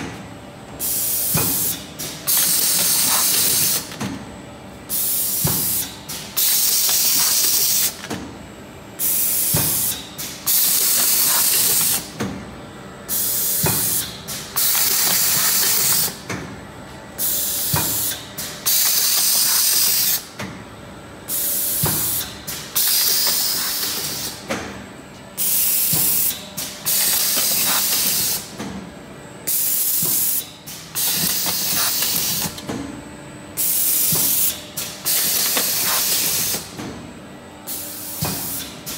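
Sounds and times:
machine air hiss bursts: 0:00.8 - 0:04.0, 0:04.9 - 0:08.0, 0:09.0 - 0:12.2, 0:13.1 - 0:16.2, 0:17.2 - 0:20.3, 0:21.3 - 0:24.4, 0:25.4 - 0:28.5, 0:29.5 - 0:32.6, 0:33.6 - 0:36.8, 0:37.7 - 0:38.9.

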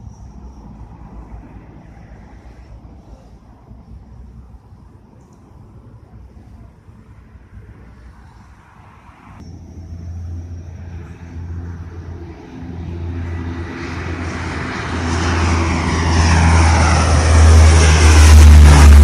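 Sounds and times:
low propeller drone: 0:00.0 - 0:19.0
aircraft sweeping whoosh: 0:08.2 - 0:19.0.

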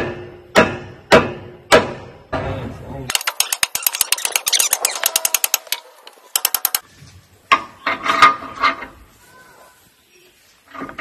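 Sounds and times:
rapid sharp metallic clicks: 0:03.1 - 0:06.8.

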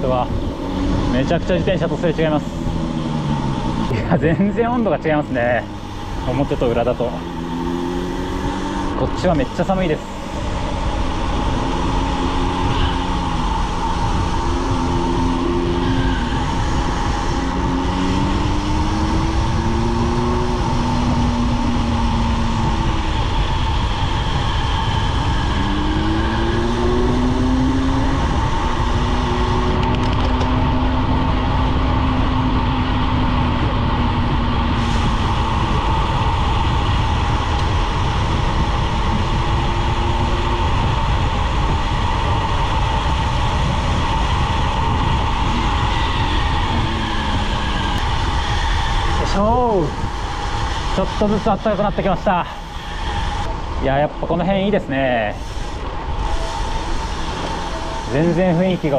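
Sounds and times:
low tones rising and falling: 0:00.0 - 0:58.9
tyre and road rumble: 0:00.0 - 0:58.9
wind rushing over microphone: 0:00.0 - 0:58.9
steady high hum: 0:30.9 - 0:58.9.

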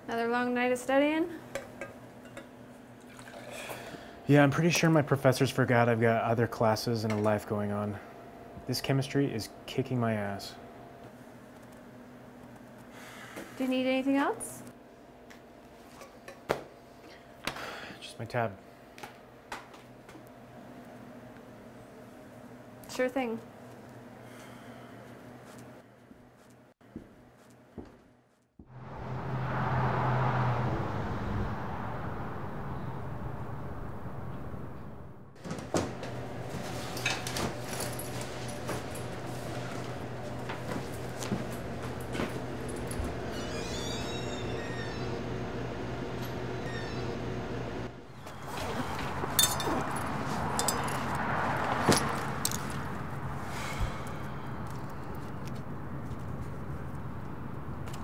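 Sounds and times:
car passing: 0:28.7 - 0:35.4, 0:48.4 - 0:55.8
street noise rush: 0:28.7 - 0:35.4, 0:48.2 - 0:58.0
low hum: 0:28.7 - 0:51.3.

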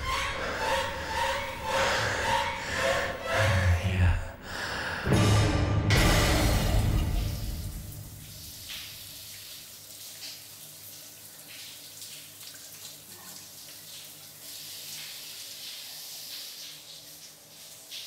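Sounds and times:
shower water spraying: 0:06.2 - 0:18.0.

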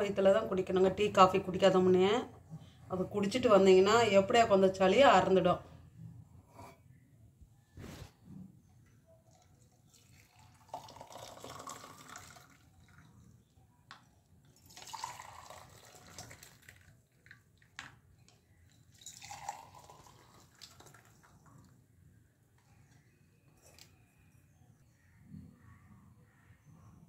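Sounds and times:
liquid pouring into glasses: 0:09.3 - 0:13.5, 0:14.6 - 0:17.7, 0:18.7 - 0:21.8.

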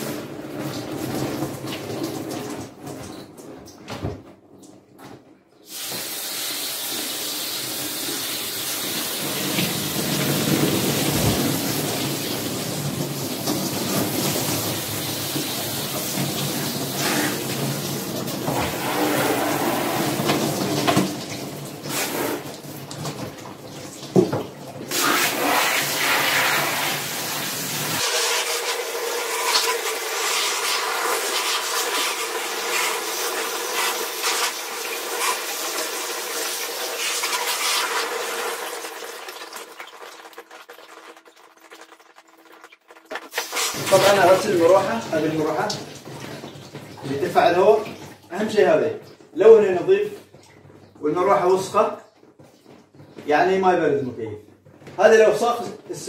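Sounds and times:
water splashing into bucket: 0:05.7 - 0:50.7
water spray rushing: 0:24.9 - 0:35.8, 0:43.3 - 0:45.7.

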